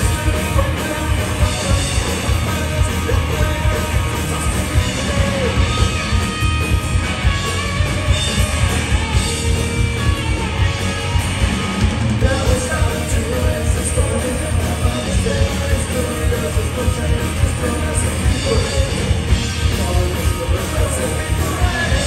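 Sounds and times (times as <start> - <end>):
lead vocalist singing: 0.0 - 6.0, 12.2 - 22.0
bass guitar: 0.0 - 22.0
distorted electric guitars: 0.0 - 22.0
driving drum beat: 0.0 - 22.0.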